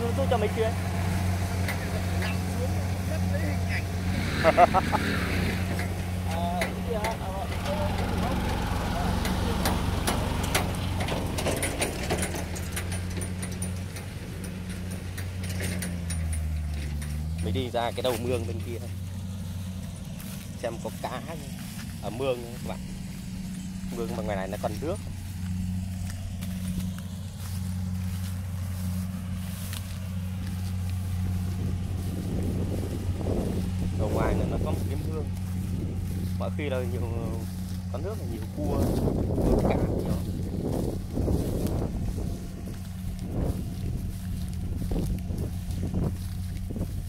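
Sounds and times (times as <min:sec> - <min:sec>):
distant harvester engine hum: 0:00.0 - 0:47.0
light crackles: 0:05.1 - 0:32.2.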